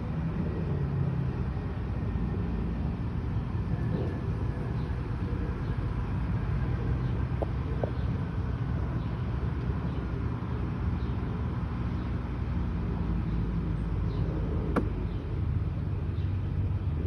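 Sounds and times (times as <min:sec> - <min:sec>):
distant road traffic rumble: 0:00.0 - 0:17.0
sharp click: 0:14.7 - 0:15.0.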